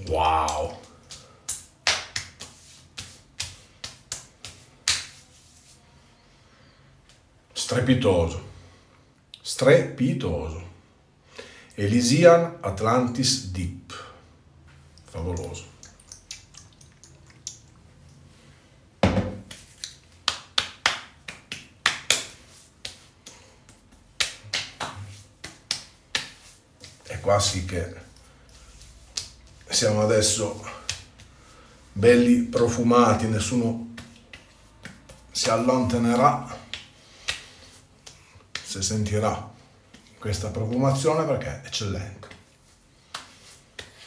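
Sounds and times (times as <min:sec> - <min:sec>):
palms slapping skin: 0:00.1 - 0:05.8, 0:15.2 - 0:17.8, 0:19.4 - 0:31.5, 0:33.5 - 0:41.0, 0:42.2 - 0:44.0
thud: 0:19.0 - 0:19.5.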